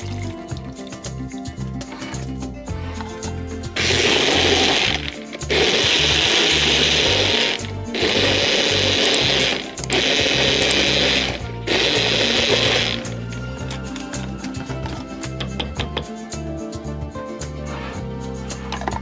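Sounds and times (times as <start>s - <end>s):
blender running: 3.8s - 13.3s.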